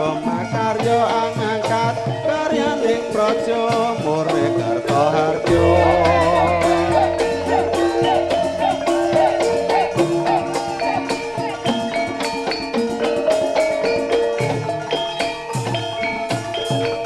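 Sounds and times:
drum strokes: 0.0s - 17.0s
tuned metal percussion ringing: 0.0s - 17.0s.

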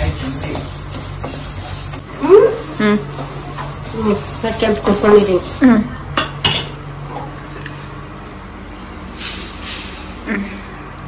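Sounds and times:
spice grains sliding into pot: 8.8s - 10.1s.

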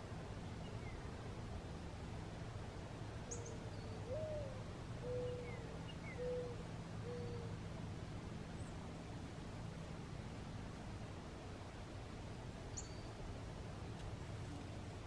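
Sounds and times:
small birds chirping: 3.3s - 4.4s, 12.7s - 13.2s
bird cooing: 3.3s - 7.6s.

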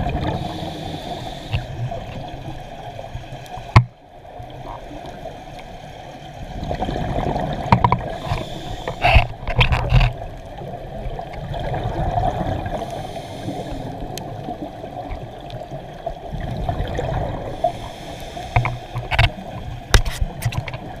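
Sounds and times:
sharp clicks and knocks: 3.7s - 4.0s, 7.7s - 10.2s, 18.5s - 20.9s
underwater regulator bubbling: 6.6s - 10.4s.

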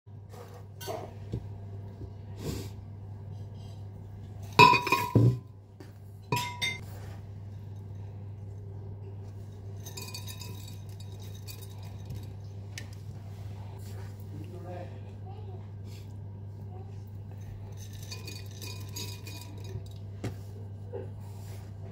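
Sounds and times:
low steady hum: 0.1s - 21.9s
glass clinking: 4.6s - 5.4s, 6.3s - 6.8s, 9.7s - 12.2s, 17.7s - 20.0s.

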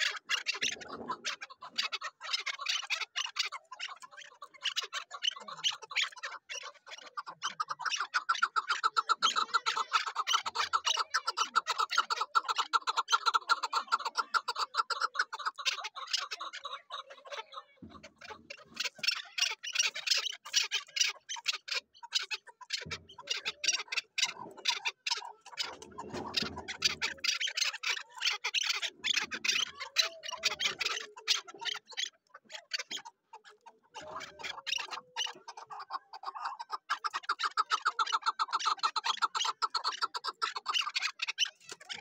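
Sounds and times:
partridge calling: 0.0s - 42.0s.

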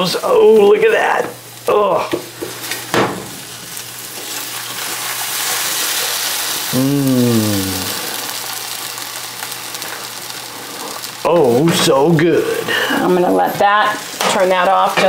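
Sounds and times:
egg sizzling in a pan: 0.0s - 15.0s
falling vocal murmur: 6.7s - 8.3s.

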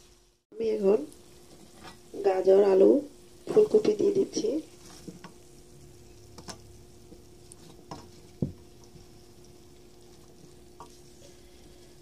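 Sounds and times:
faint steady hum: 0.0s - 12.0s
spatula scraping a pan: 1.4s - 2.1s.

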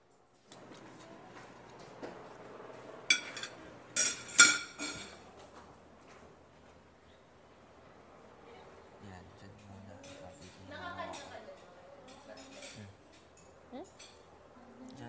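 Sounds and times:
low room murmur: 0.0s - 15.0s
ceramic plates clinking: 3.1s - 5.2s.

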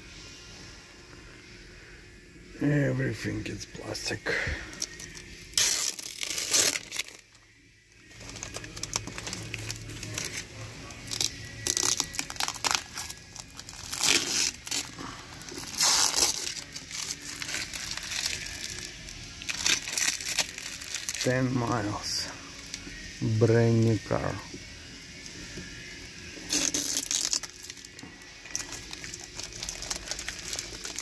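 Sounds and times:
plastic film crinkling and ripping: 4.0s - 7.4s, 8.0s - 23.0s, 26.4s - 31.0s.

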